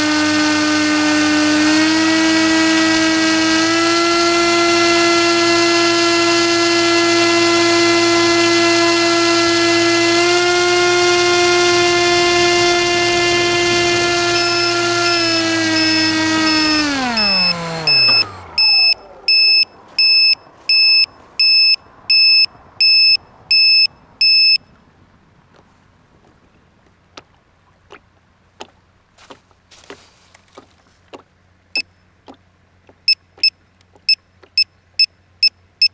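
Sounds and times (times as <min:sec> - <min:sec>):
model airboat motor and propeller: 0:00.0 - 0:23.7
high electronic beeps: 0:14.4 - 0:24.6.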